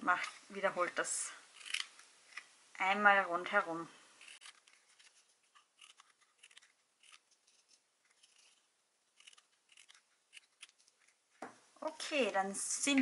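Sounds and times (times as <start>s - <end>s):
scissors snipping cardstock: 1.6s - 2.5s, 4.2s - 11.2s.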